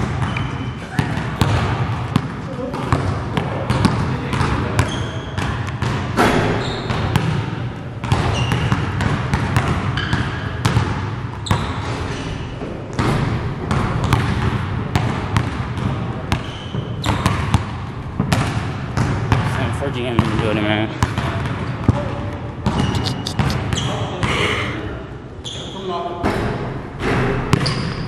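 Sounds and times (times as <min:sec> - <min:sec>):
basketballs bouncing on gym floor: 0:00.0 - 0:12.0, 0:12.6 - 0:24.4, 0:27.0 - 0:28.0
short high squeaks: 0:22.8 - 0:24.0.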